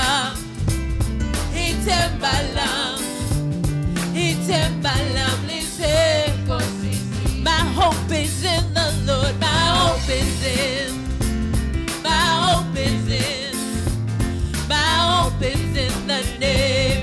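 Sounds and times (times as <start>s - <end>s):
woman singing with vibrato: 0.0s - 0.4s, 1.6s - 3.3s, 4.1s - 11.0s, 12.0s - 13.8s, 14.6s - 17.0s
bass: 0.0s - 17.0s
drums: 0.0s - 17.0s.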